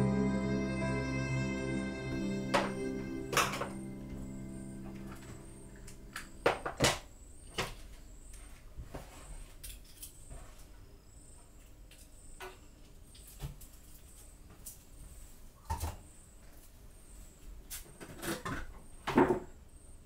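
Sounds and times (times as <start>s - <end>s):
music: 0.0s - 6.6s.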